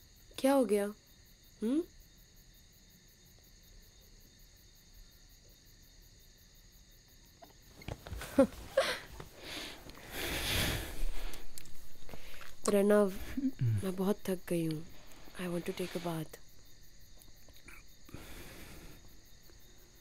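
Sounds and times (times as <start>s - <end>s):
crickets chirring: 0.0s - 20.0s
rustling of clothes and bedding: 7.6s - 13.3s
short breathy vocal sounds: 13.1s - 13.9s.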